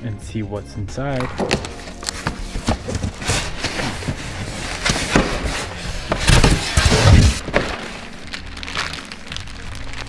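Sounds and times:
cardboard box scraping and rustling: 1.9s - 7.8s.

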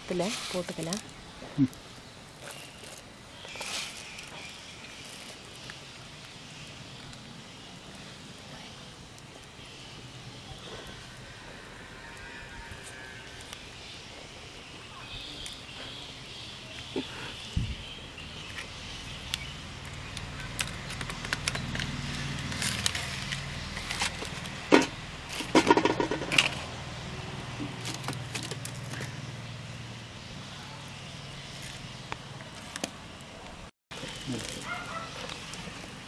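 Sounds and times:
wood fire crackling and popping: 0.0s - 36.0s
clicks and clatter: 20.4s - 26.6s.

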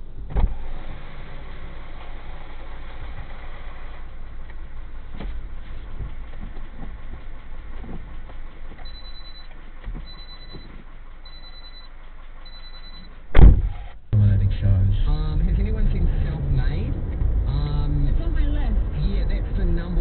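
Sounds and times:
low rumble and hiss: 0.0s - 20.0s
high electronic beep: 8.9s - 9.5s, 10.1s - 10.7s, 11.3s - 11.9s, 12.5s - 13.2s.

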